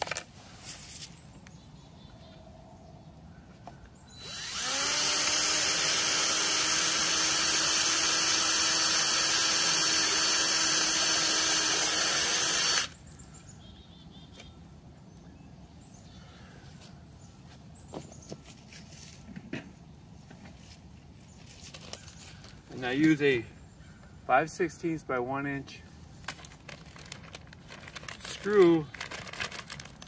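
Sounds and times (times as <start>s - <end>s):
cordless drill whining: 4.1s - 13.0s.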